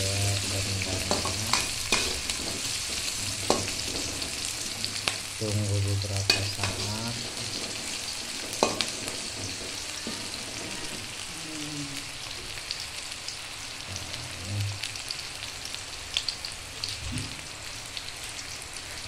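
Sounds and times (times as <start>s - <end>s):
food sizzling in hot oil: 0.0s - 19.0s
metal spatula scraping a pan: 0.8s - 5.2s, 6.3s - 11.3s.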